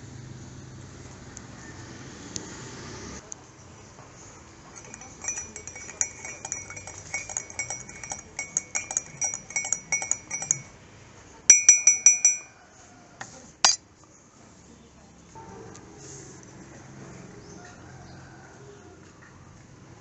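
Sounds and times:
bell-like metallic rings: 0:04.8 - 0:10.7, 0:11.5 - 0:12.6.

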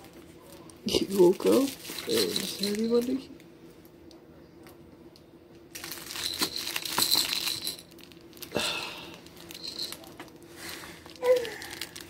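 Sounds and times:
crinkling and rustling: 0:00.0 - 0:03.3, 0:05.7 - 0:12.0
faint steady hum: 0:00.0 - 0:12.0.

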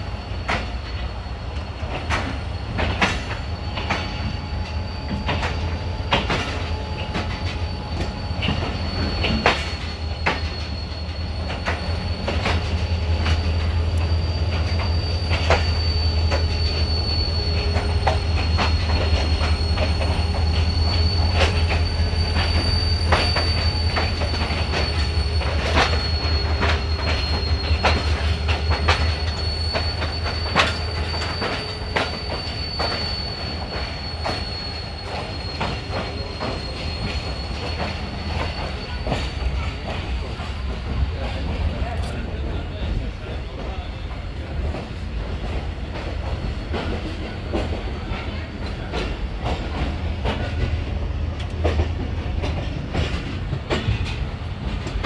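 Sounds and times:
low train rumble: 0:00.0 - 0:55.0
train wheel squeal: 0:00.0 - 0:55.0
wheels clacking over rail joints: 0:00.4 - 0:04.5, 0:05.1 - 0:55.0.

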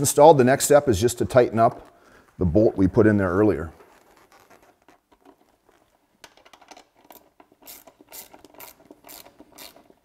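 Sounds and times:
ratchet wrench clicking: 0:07.6 - 0:09.9.

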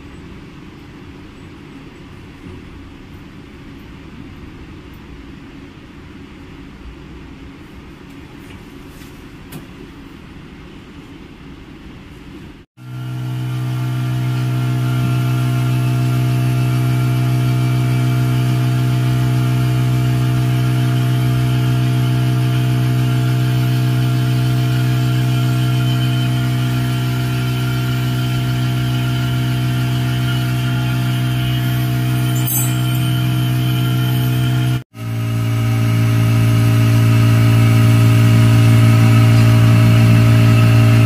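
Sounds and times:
suction motor humming: 0:12.9 - 0:41.0.

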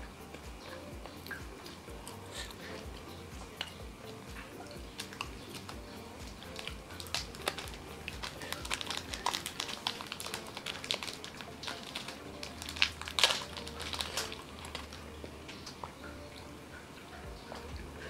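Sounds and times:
wrapper crinkling: 0:05.0 - 0:15.8.

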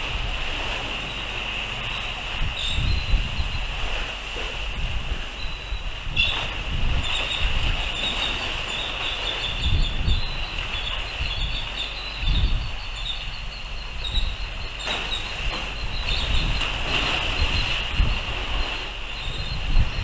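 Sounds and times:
wind gusting on microphone: 0:00.0 - 0:20.0.

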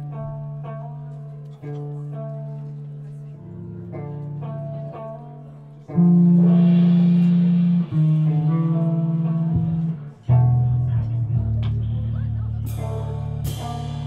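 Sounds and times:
loud electric guitar chords: 0:05.9 - 0:14.0.

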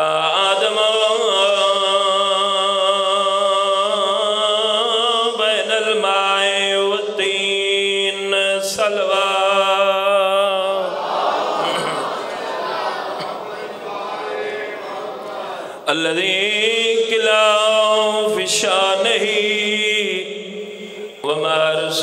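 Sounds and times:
man chanting into a microphone: 0:00.0 - 0:10.9, 0:15.7 - 0:22.0.

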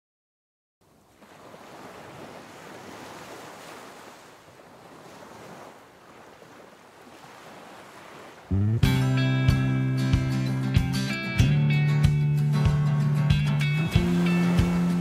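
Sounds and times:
small waves washing onto beach: 0:00.8 - 0:08.6, 0:13.7 - 0:15.0
wind: 0:00.8 - 0:11.3, 0:12.4 - 0:15.0.

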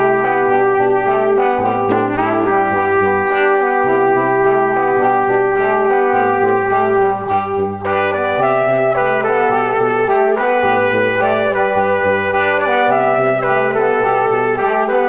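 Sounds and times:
bass line: 0:00.0 - 0:15.0
held chords: 0:00.0 - 0:15.0.

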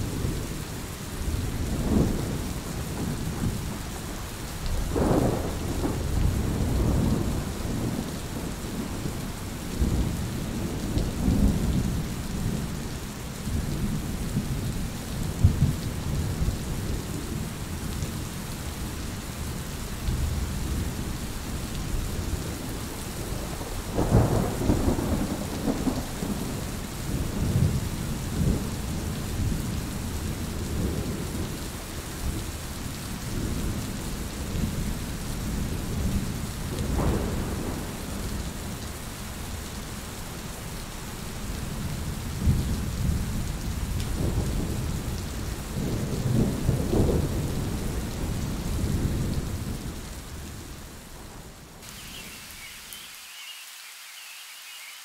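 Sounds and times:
steady rain: 0:00.0 - 0:55.0
thunder rumbling: 0:22.1 - 0:31.5.

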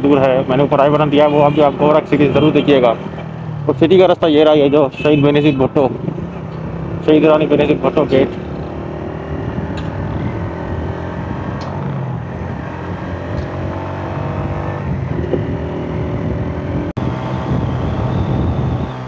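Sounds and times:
motorcycle engine running: 0:06.0 - 0:16.8.

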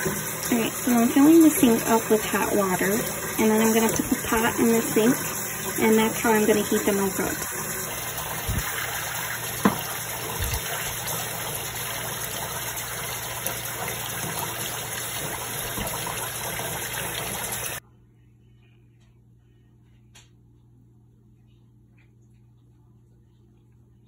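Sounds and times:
water running into a steel sink: 0:00.0 - 0:17.8.

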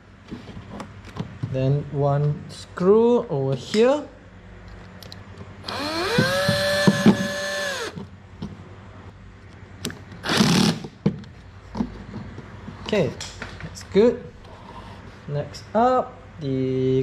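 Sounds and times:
cordless drill whining: 0:05.6 - 0:08.0
drill ticking: 0:05.6 - 0:08.0.

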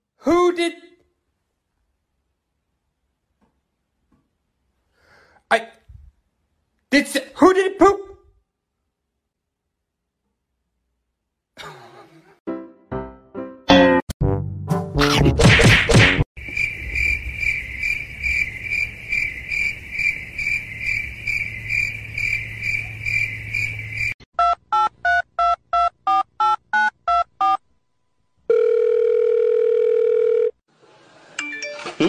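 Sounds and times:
steady telephone tone: 0:28.5 - 0:30.6.

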